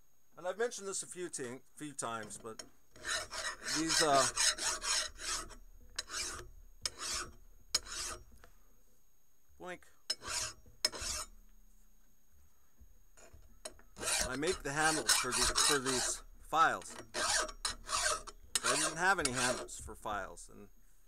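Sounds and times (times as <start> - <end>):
file rasping on metal: 2.2 - 8.3, 10.1 - 11.3, 14.0 - 19.8.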